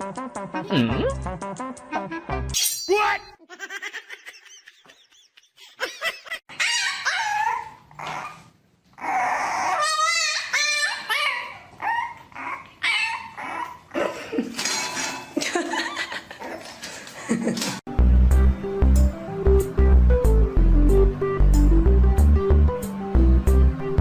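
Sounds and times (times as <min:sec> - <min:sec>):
puppy whining and yapping: 0:06.5 - 0:14.0.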